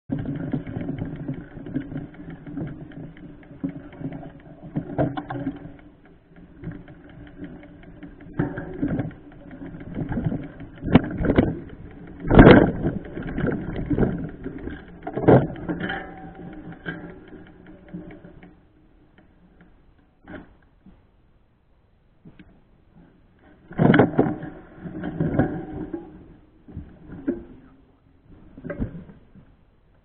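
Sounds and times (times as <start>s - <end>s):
mountain bike rattling on dirt trail: 0.1s - 19.5s, 23.5s - 29.3s
bike knocking over bumps: 6.6s - 17.7s.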